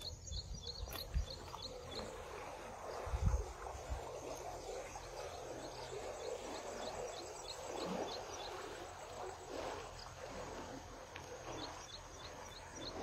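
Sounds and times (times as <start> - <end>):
bird chirping: 0.0 - 2.4
soft steady rushing: 0.0 - 13.0.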